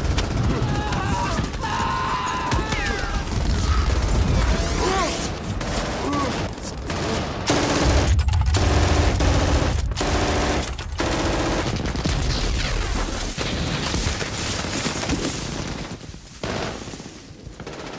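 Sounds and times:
machine gun firing bursts: 0:00.0 - 0:01.6, 0:03.0 - 0:12.3, 0:17.5 - 0:17.9
heavy gunfire from many weapons: 0:00.0 - 0:17.9.

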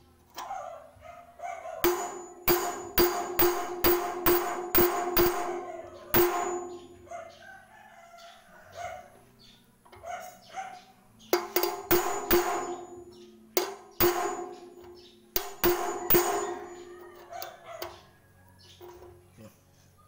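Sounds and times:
hammer striking steel bar: 0:01.8 - 0:07.1, 0:11.4 - 0:17.0.

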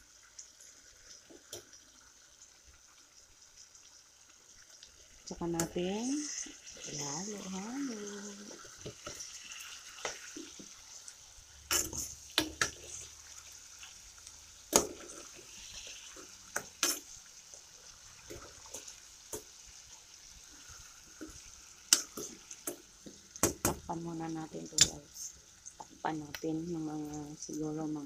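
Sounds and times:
chicken sizzling in oil: 0:00.0 - 0:28.0
utensil scraping a frying pan: 0:11.7 - 0:13.2, 0:14.8 - 0:17.2.

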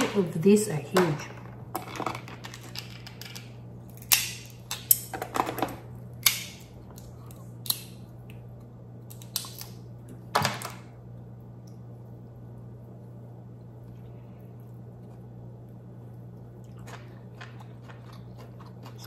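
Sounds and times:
crab shell cracking: 0:06.2 - 0:09.8.

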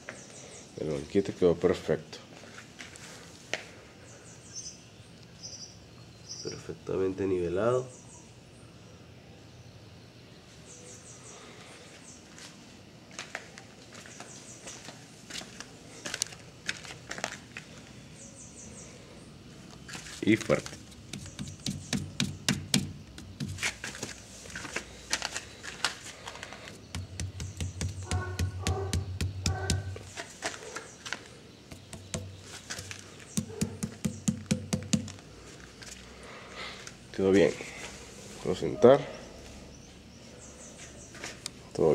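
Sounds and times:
fist knocking on concrete: 0:21.1 - 0:23.7, 0:26.9 - 0:30.0, 0:31.7 - 0:35.2
faint taps and scuffs: 0:23.2 - 0:34.2, 0:40.8 - 0:41.6.

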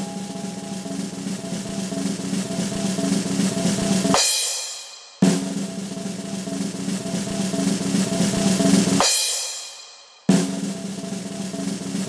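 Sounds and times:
cymbal crashes: 0:00.0 - 0:11.9
snare drum roll: 0:00.0 - 0:12.0.

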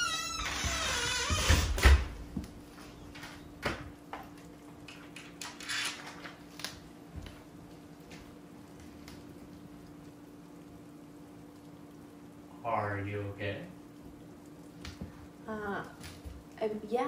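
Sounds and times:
door thudding shut: 0:00.2 - 0:02.2.

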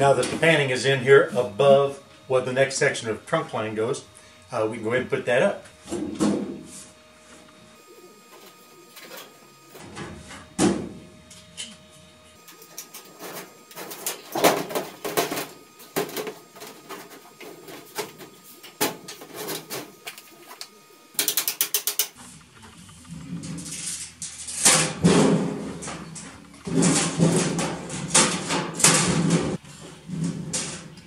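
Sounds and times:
sheet metal duct clanking: 0:12.6 - 0:20.0, 0:23.3 - 0:31.0.

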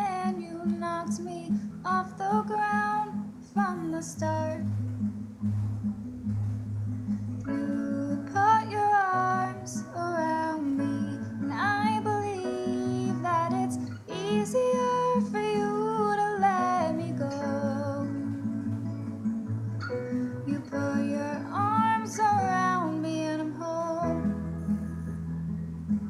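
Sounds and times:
woman singing: 0:00.0 - 0:04.7, 0:07.5 - 0:18.3, 0:20.4 - 0:24.5
guitar accompaniment: 0:00.0 - 0:26.0.

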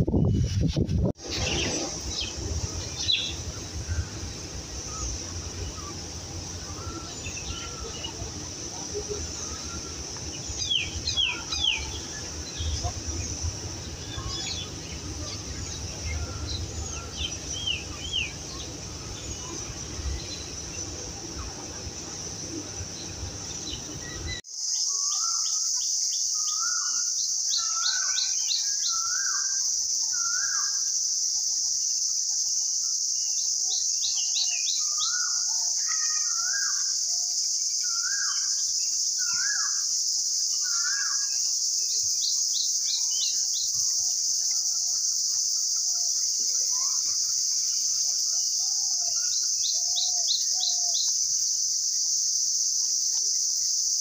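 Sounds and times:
birds calling: 0:01.2 - 0:25.6, 0:37.8 - 0:51.4
high-pitched insect drone: 0:01.2 - 0:54.0.

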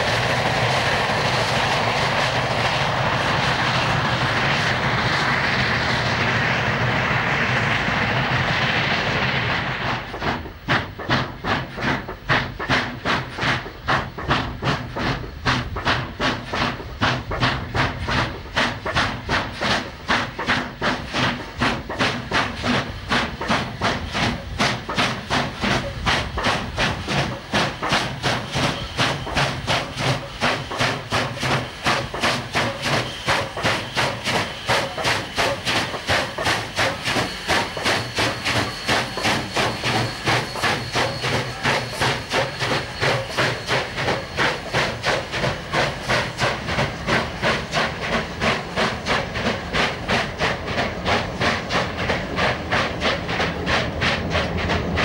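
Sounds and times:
steam hiss: 0:00.0 - 0:55.0
steam locomotive chuffing: 0:00.0 - 0:55.0.

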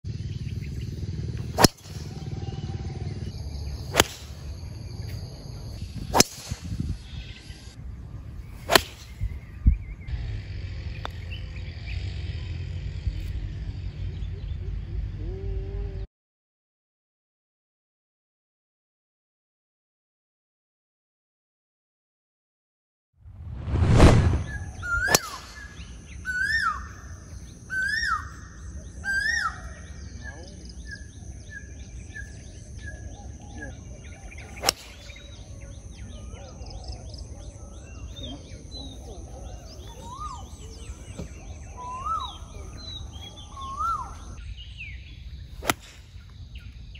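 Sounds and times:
wind rumble: 0:00.1 - 0:11.5, 0:23.3 - 0:27.7
golf driver striking ball: 0:01.5 - 0:02.2, 0:03.9 - 0:04.6, 0:06.1 - 0:06.7, 0:08.7 - 0:09.2, 0:24.0 - 0:25.9, 0:34.6 - 0:35.2, 0:45.6 - 0:46.0
rushing swell of noise: 0:23.4 - 0:24.9
bird calling: 0:24.4 - 0:46.9.

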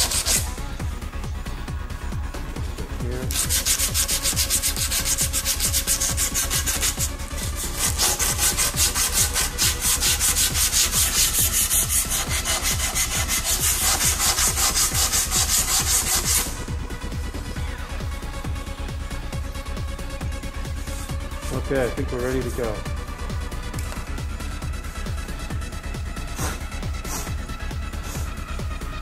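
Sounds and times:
sandpaper rasping on bamboo: 0:00.0 - 0:00.6, 0:03.3 - 0:16.6.

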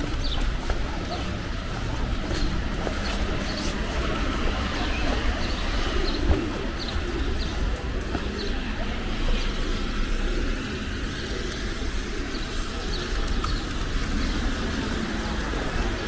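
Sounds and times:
traffic hum: 0:00.0 - 0:16.0.

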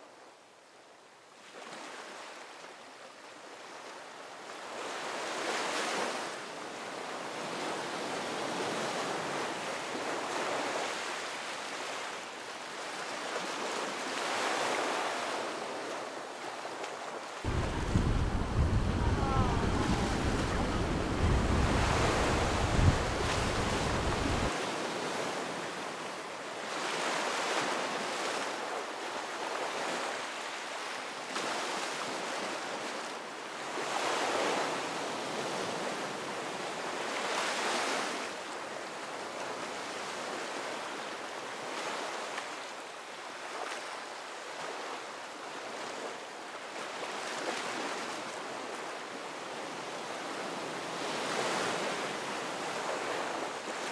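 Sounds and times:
waves breaking on shore: 0:01.4 - 0:53.9
wind buffeting microphone: 0:17.5 - 0:24.5.

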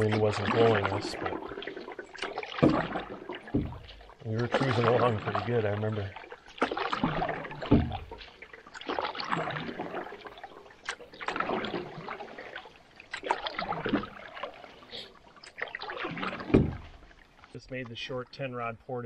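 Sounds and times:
canoe paddle splashing in water: 0:00.0 - 0:18.1
water dripping: 0:00.0 - 0:18.4
thump: 0:03.5 - 0:03.9, 0:07.7 - 0:08.2, 0:16.5 - 0:17.0.

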